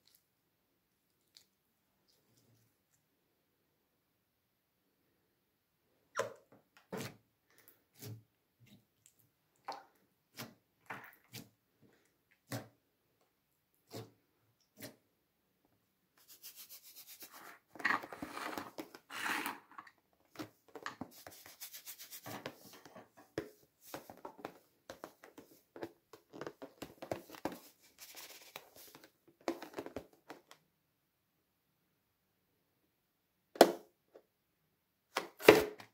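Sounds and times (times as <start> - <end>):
close rubbing noise: 16.2 - 19.7.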